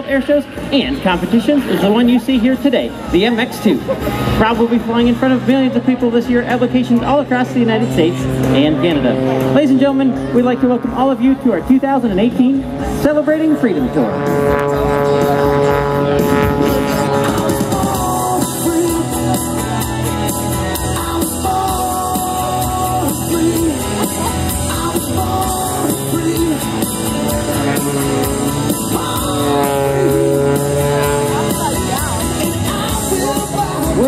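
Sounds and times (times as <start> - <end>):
rock music with singing: 0.0 - 34.0.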